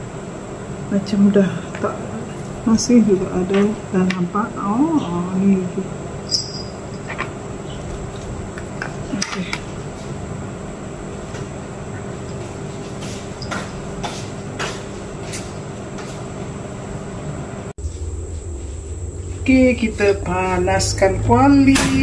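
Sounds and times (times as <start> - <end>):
low hum: 0.0 - 14.0, 16.3 - 22.0.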